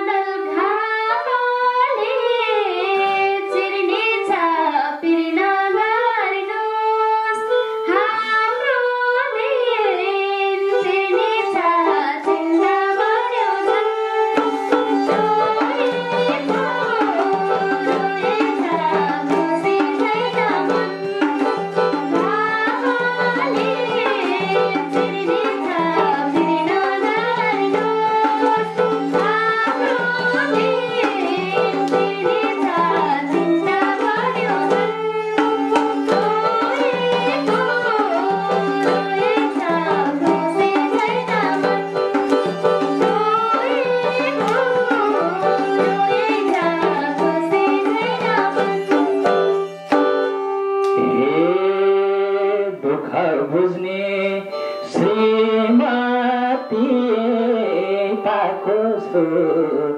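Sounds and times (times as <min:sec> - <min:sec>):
keyboard: 0:00.0 - 0:59.9
bowed string melody: 0:05.4 - 0:59.9
hand drum: 0:10.0 - 0:52.8.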